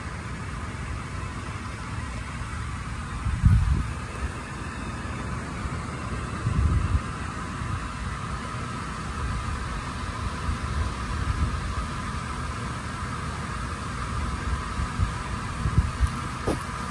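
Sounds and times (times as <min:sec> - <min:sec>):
steady mid-pitched drone: 0:00.0 - 0:16.9
wind buffeting microphone: 0:03.1 - 0:04.5, 0:06.3 - 0:08.0, 0:14.4 - 0:16.9.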